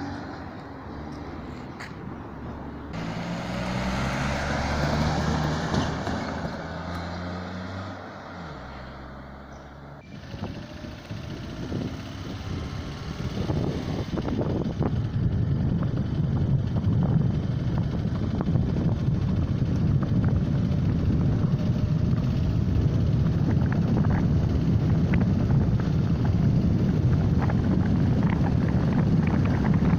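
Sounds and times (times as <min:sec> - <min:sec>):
car engine and tyre rumble: 0:00.0 - 0:29.9
wind noise on microphone: 0:10.0 - 0:29.9.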